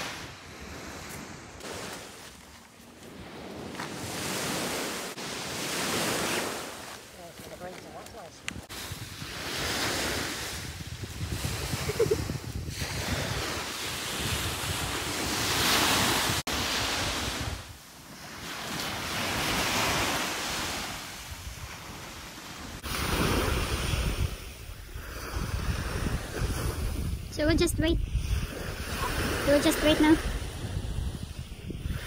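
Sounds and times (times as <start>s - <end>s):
waves breaking on beach: 0.0s - 32.0s
wind rumbling on microphone: 7.6s - 17.8s, 19.0s - 32.0s.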